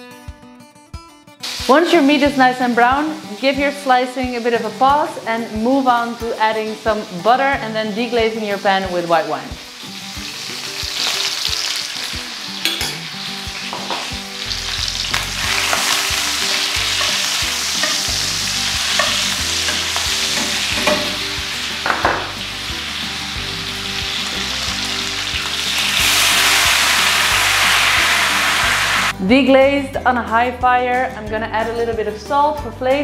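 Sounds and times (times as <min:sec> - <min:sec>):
meat sizzling in a pan: 0:01.4 - 0:05.1, 0:05.7 - 0:29.1
wine poured into hot pan: 0:24.0 - 0:29.1.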